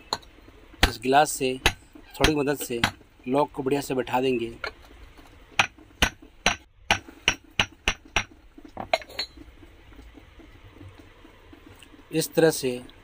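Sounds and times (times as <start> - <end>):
sharp metal knocks: 5.6 - 8.3.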